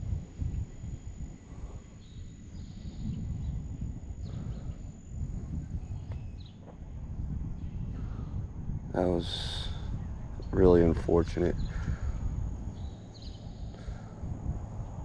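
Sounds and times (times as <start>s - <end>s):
faint high chirps: 0.0s - 6.6s, 11.6s - 15.0s
thin high tone: 0.0s - 14.9s
wind buffeting microphone: 0.0s - 15.0s.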